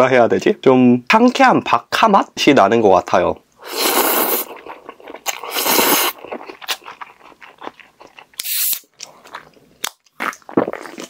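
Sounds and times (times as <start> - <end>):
short hiss: 3.6 - 4.5, 5.5 - 6.1, 8.4 - 8.9
person slurping noodles: 3.6 - 7.6, 8.4 - 9.4, 10.2 - 11.0
wet chewing: 3.7 - 11.0.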